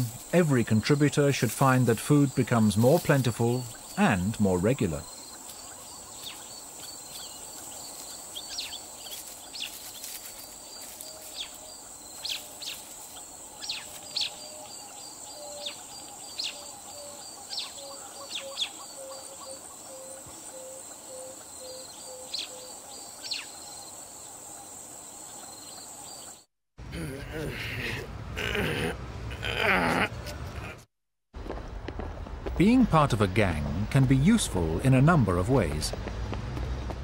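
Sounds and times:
birds chirping: 0.0s - 30.7s, 32.6s - 37.0s.

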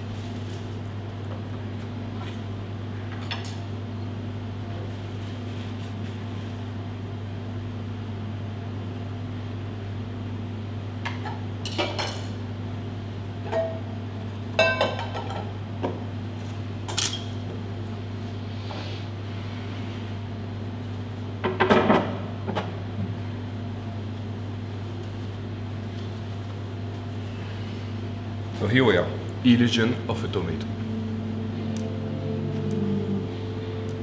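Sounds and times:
steady low hum: 0.0s - 34.0s
dishes clinking on steel counter: 14.6s - 15.5s.

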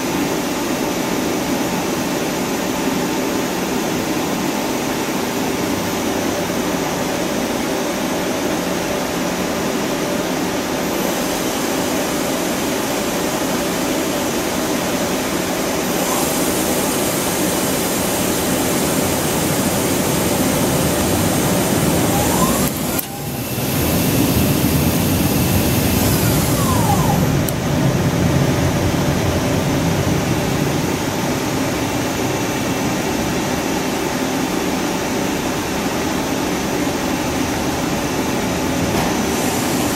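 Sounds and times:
spindle whine and hiss: 0.2s - 36.2s, 37.9s - 39.9s
machine hum: 10.9s - 32.9s.

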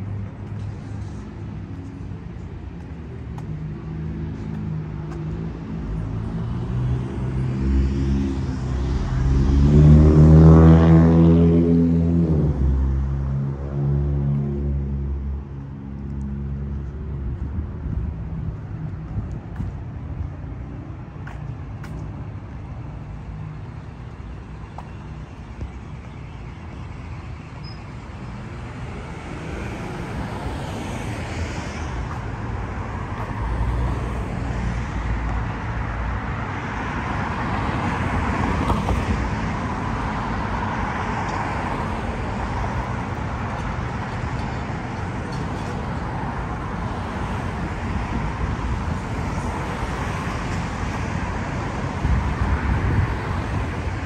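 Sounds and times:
cars driving past: 0.0s - 54.0s.

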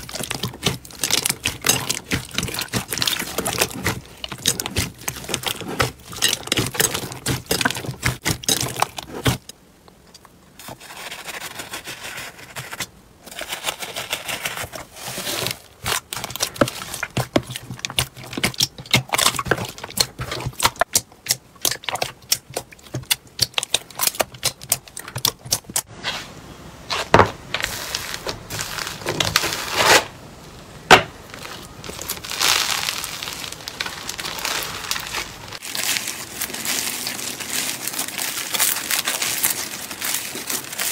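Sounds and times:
slime popping and crackling: 0.0s - 9.5s, 15.8s - 25.9s, 31.4s - 40.9s.

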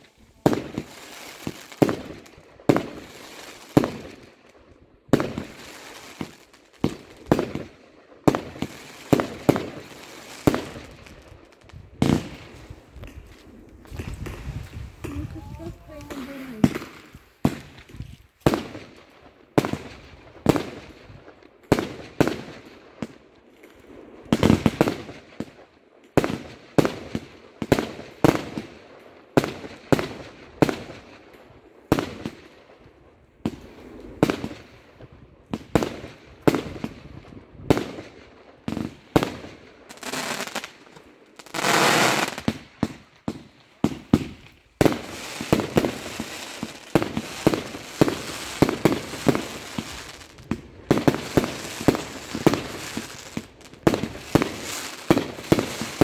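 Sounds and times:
fireworks bangs: 0.0s - 4.3s, 5.1s - 22.7s, 33.4s - 56.0s
fireworks crackling: 0.0s - 23.2s, 31.9s - 56.0s.

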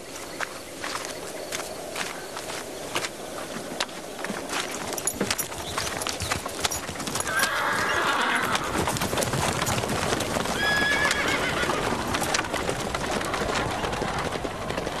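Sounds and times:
horse hooves clip-clopping: 0.0s - 15.0s
horse neighing: 7.2s - 8.9s, 10.5s - 12.0s.

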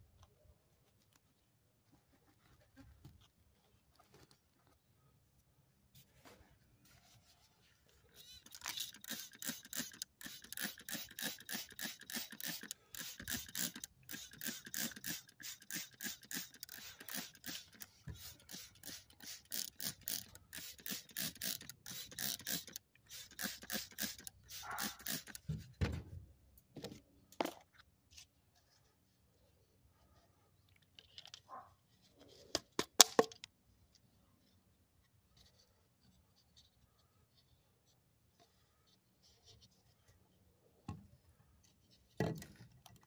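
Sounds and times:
spray bottle squirting: 8.2s - 25.6s.

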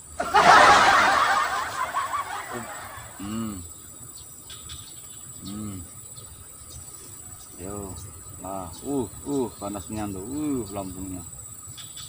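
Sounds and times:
faint insect drone: 0.0s - 12.0s
man laughing: 0.2s - 3.6s
man humming: 3.2s - 3.6s, 5.4s - 5.9s.

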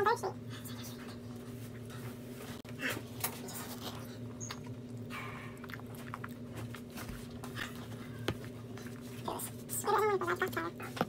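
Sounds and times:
low room hum: 0.0s - 11.0s
person chewing food: 2.6s - 9.6s.

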